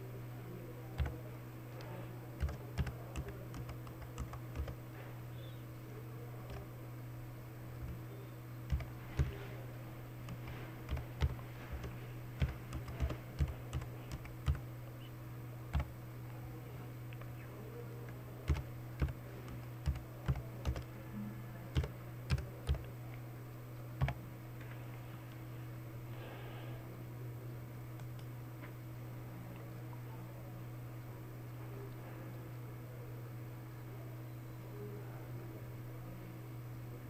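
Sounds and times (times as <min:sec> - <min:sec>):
steady low hum: 0:00.0 - 0:37.0
computer keyboard typing: 0:01.0 - 0:01.2, 0:02.4 - 0:04.8, 0:06.4 - 0:06.7, 0:07.8 - 0:08.0, 0:08.6 - 0:09.5, 0:10.2 - 0:14.7, 0:15.7 - 0:16.0, 0:18.4 - 0:20.9, 0:21.7 - 0:22.9, 0:24.0 - 0:24.2.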